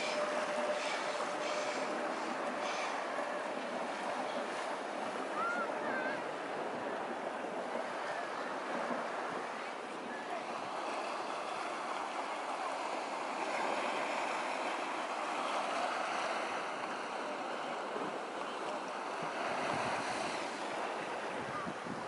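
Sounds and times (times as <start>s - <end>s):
small waves on sandy beach: 0.0s - 22.0s
wind buffeting microphone: 19.0s - 22.0s.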